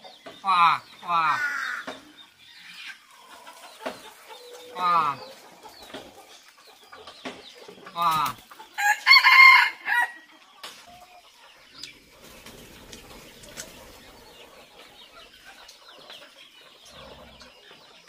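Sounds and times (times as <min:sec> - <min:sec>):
chickens clucking: 0:00.0 - 0:18.0
rooster crowing: 0:08.8 - 0:10.3.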